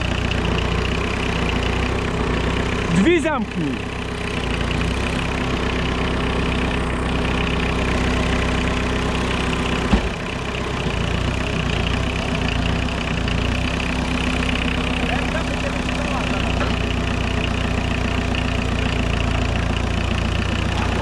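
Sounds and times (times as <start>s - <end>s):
diesel engine idling: 0.0s - 21.0s
thump: 9.9s - 10.2s.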